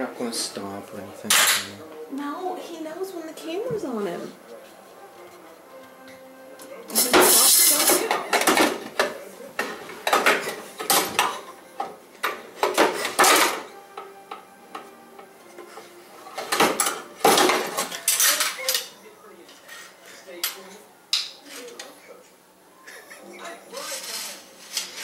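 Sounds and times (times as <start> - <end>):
metal tools clattering: 9.6 - 11.5, 12.2 - 13.8, 16.4 - 19.0.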